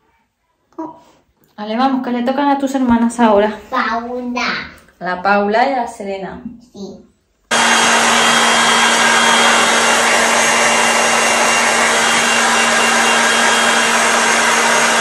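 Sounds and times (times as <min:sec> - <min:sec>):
hair dryer blowing: 0:07.5 - 0:15.0.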